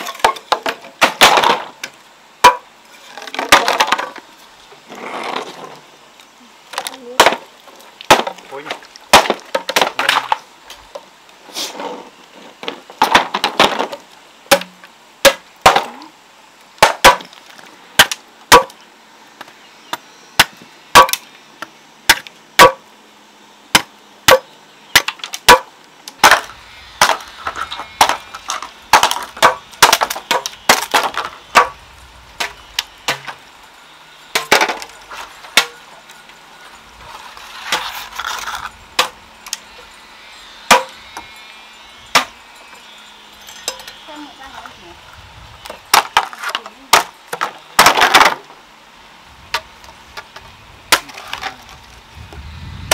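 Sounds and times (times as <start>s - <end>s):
sharp chopping knocks: 40.7s - 40.9s.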